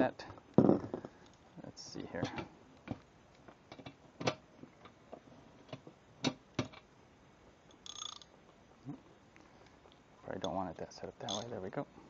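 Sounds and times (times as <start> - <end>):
metallic clink: 11.2 - 11.6.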